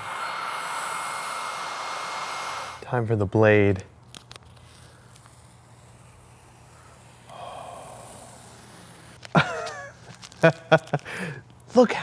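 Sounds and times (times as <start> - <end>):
masking tape being peeled: 4.0 - 11.7.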